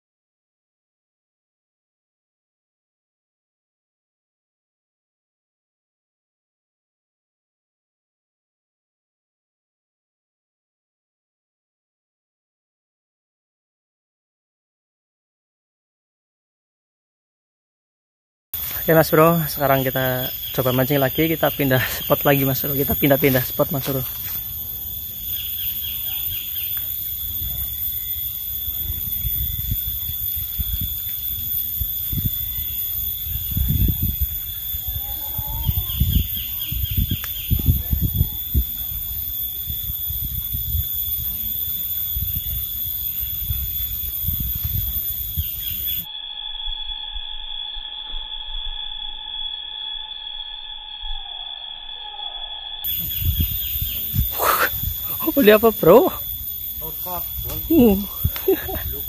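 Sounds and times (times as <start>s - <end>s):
bird chirping: 18.6s - 24.2s, 24.8s - 27.2s, 35.1s - 37.8s, 45.2s - 46.0s, 52.9s - 59.0s
high-pitched insect drone: 18.6s - 59.0s
high-pitched whine: 18.6s - 59.0s.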